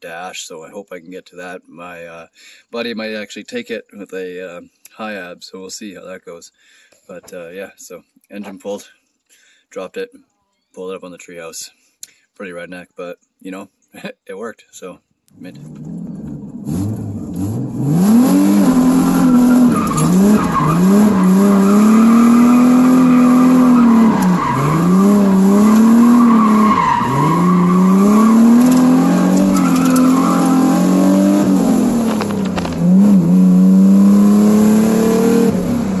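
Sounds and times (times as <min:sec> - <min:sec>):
car engine revving through gears: 0:15.4 - 0:36.0.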